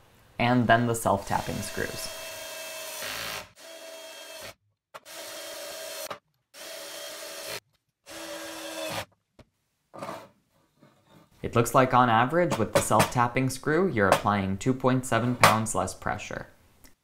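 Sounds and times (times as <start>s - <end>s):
drill motor whirring: 1.3s - 9.1s.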